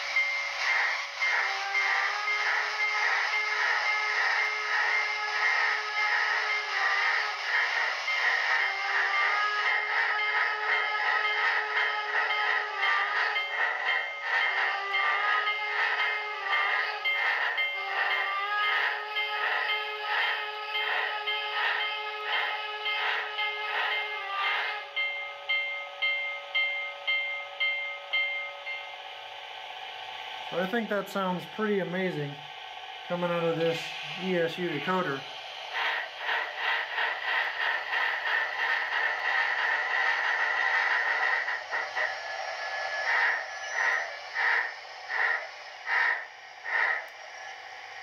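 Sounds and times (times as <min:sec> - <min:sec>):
steam locomotive exhaust chuff: 0:00.0 - 0:48.0
locomotive bell ringing: 0:24.9 - 0:29.0.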